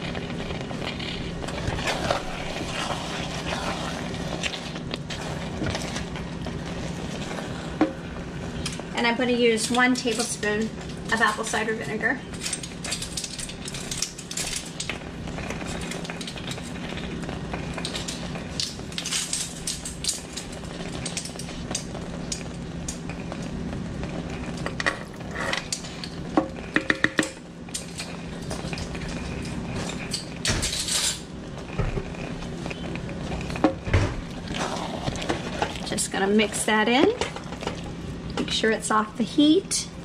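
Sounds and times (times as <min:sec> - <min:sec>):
spatula stirring thick filling: 0:00.0 - 0:08.9, 0:31.6 - 0:38.3.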